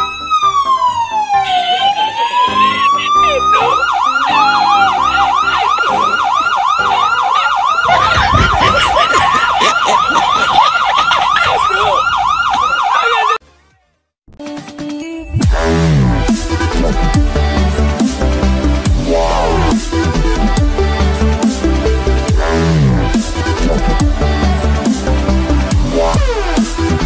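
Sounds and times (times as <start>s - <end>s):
police siren from loudspeaker: 0.0s - 13.4s.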